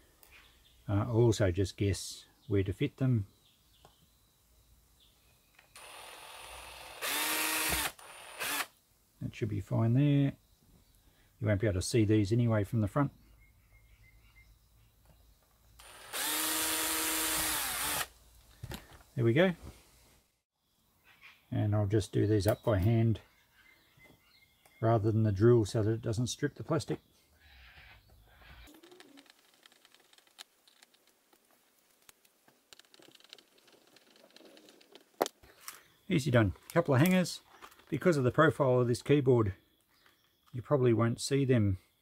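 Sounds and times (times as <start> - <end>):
cordless drill boring into plastic: 5.7 - 8.7, 15.8 - 18.1.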